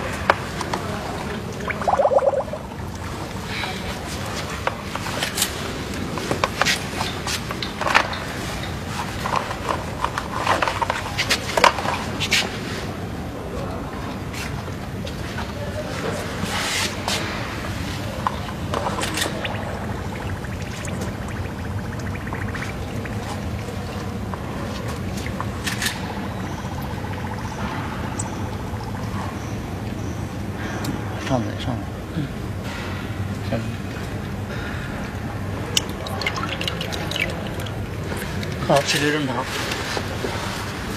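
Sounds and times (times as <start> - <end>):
tubing clicks and rustles: 0.1 - 12.6, 14.2 - 30.6, 35.5 - 40.9
water splashing into bucket: 1.1 - 3.5, 18.3 - 29.2, 35.8 - 38.9
water pump humming: 1.1 - 3.8, 18.1 - 30.5.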